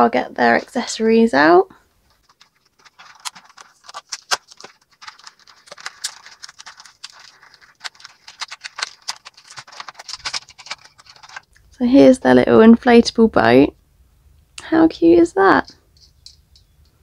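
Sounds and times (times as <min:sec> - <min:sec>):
plastic packaging crinkling: 0:02.0 - 0:11.7
small plastic pieces knocking: 0:02.1 - 0:11.5.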